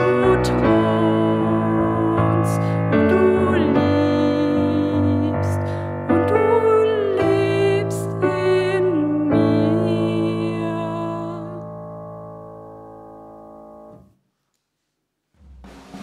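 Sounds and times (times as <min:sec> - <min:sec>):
woman singing: 0:00.0 - 0:11.8
piano accompaniment: 0:00.0 - 0:14.2.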